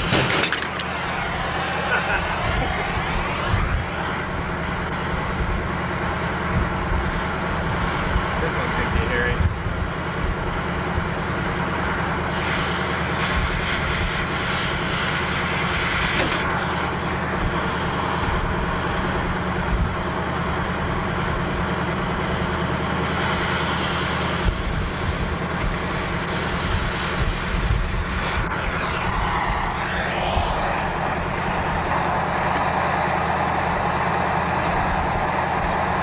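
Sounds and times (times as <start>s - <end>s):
cutting torch hissing: 0.0s - 6.3s, 12.2s - 16.6s, 23.0s - 33.3s.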